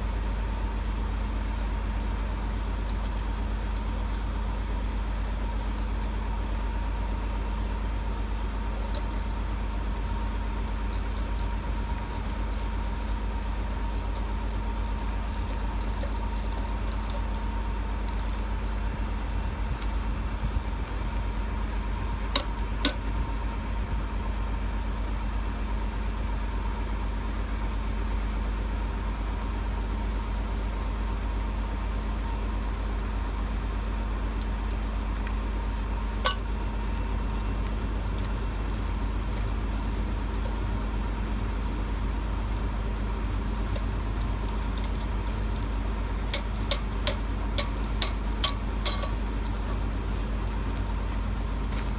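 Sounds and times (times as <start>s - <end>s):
metallic clicks of wire fittings: 43.7s - 45.1s, 45.8s - 49.8s.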